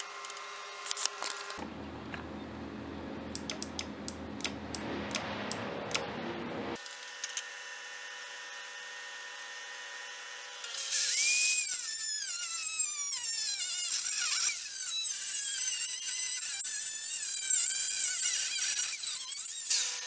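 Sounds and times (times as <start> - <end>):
angle grinder cutting steel: 10.3 - 20.0.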